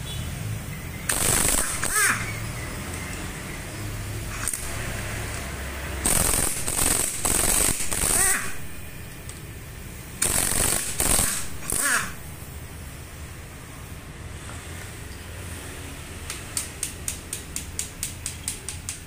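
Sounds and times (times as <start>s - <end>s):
pneumatic impact wrench hammering: 1.1s - 2.5s, 4.3s - 9.4s, 10.2s - 12.5s.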